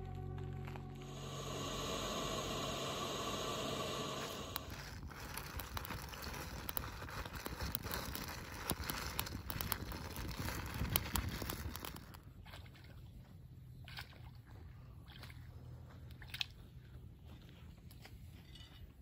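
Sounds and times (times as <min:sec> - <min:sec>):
kindling fire crackling: 0:00.0 - 0:12.2
steady rushing noise: 0:01.0 - 0:04.8.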